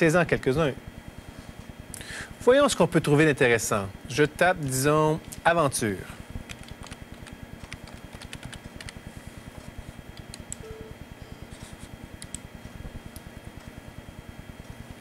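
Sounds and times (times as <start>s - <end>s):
keyboard typing: 6.5s - 9.0s.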